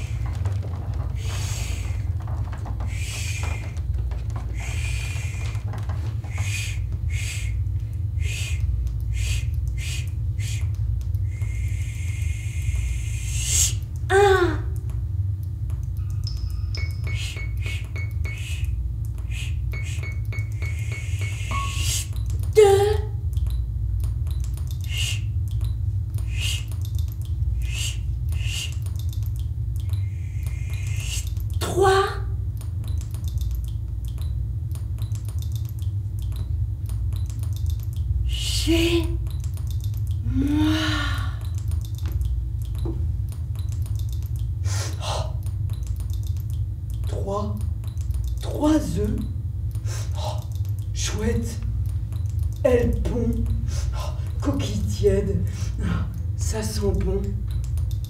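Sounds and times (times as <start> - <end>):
low rumble: 0.0 - 13.3
steady low hum: 0.0 - 58.0.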